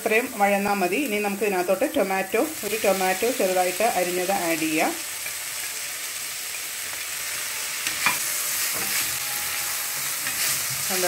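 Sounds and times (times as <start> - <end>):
onions sizzling in oil: 0.0 - 11.0
spatula stirring in pan: 7.3 - 11.0.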